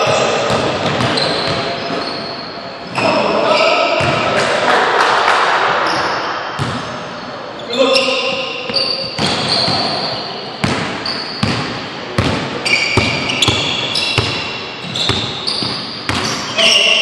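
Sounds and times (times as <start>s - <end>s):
sneakers squeaking: 0.0s - 4.4s, 5.8s - 17.0s
basketball bouncing on hardwood: 10.6s - 12.4s, 13.0s - 16.4s.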